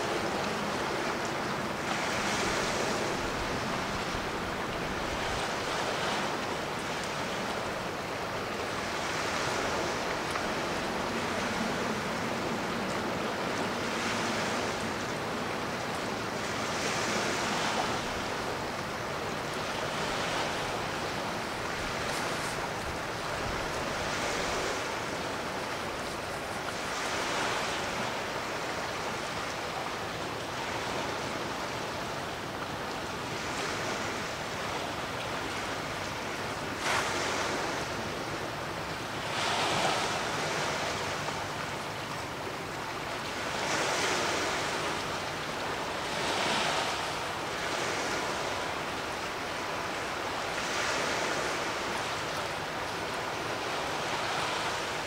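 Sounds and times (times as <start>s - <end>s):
small sea waves washing in: 0.0s - 55.0s.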